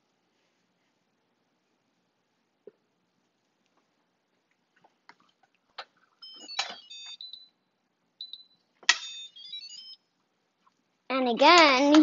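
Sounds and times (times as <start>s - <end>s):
electronic beeping tones: 6.2s - 7.6s, 8.2s - 10.1s.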